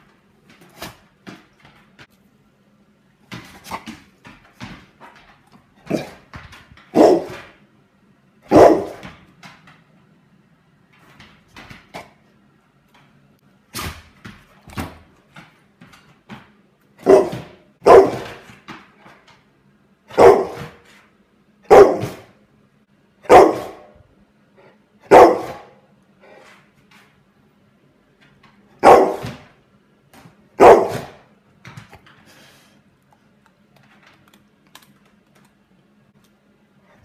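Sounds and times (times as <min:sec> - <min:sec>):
dog barking: 0:06.9 - 0:07.4, 0:08.5 - 0:09.0, 0:17.0 - 0:18.4, 0:20.1 - 0:20.8, 0:21.7 - 0:22.3, 0:23.2 - 0:24.0, 0:25.0 - 0:25.8, 0:28.8 - 0:29.4, 0:30.6 - 0:31.2.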